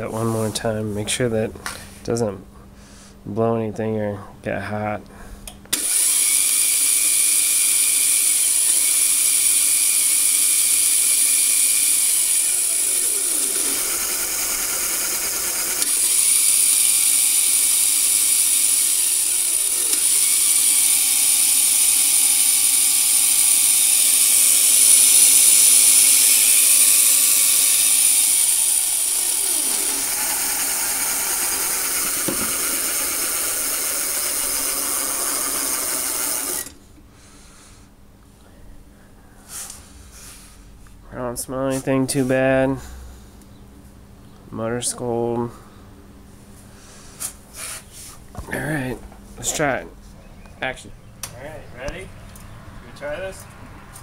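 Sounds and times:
electric motor whine: 5.7s - 36.8s.

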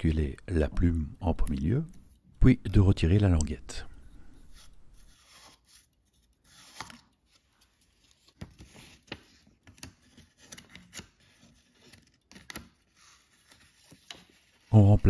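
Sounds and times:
paper rustling and sliding: 4.1s - 14.7s.

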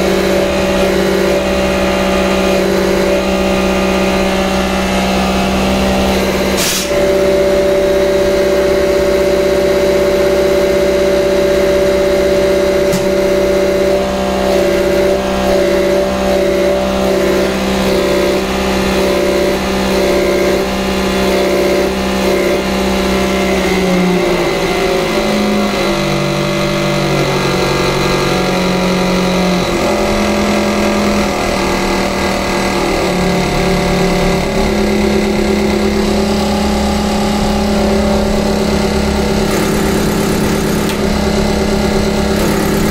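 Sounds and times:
pump test bench mechanical hum: 0.0s - 42.9s
sharp knock: 12.9s - 13.2s.

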